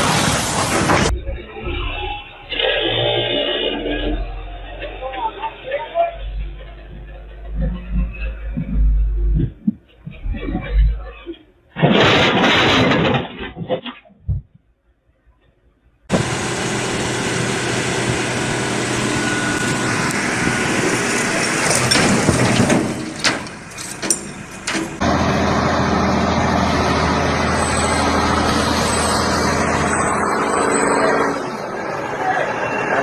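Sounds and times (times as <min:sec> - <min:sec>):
heavy vehicle engines running: 0:00.0 - 0:11.3, 0:16.1 - 0:33.0
outdoor noise: 0:00.0 - 0:33.0
low hum: 0:01.1 - 0:11.7.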